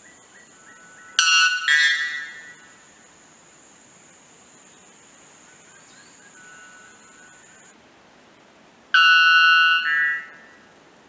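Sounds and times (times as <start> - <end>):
bellbird ringing song: 0.6 - 2.7, 9.0 - 10.6.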